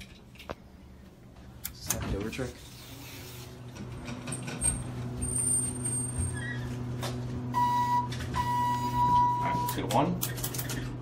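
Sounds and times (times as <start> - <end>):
electronic arrival beep: 7.6 - 9.8.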